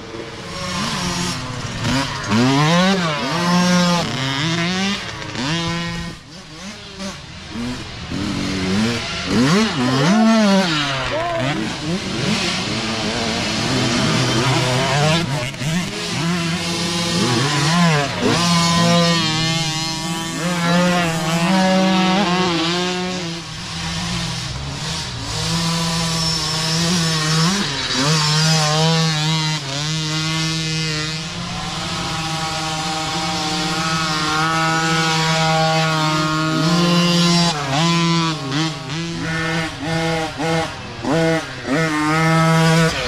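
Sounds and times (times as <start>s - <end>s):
dirt bike engine revving: 0.0s - 43.0s.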